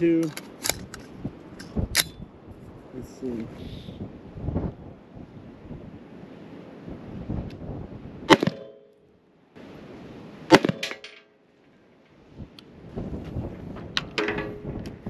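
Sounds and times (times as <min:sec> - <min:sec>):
gunshots with ringing: 0:08.3 - 0:09.0, 0:10.5 - 0:11.4.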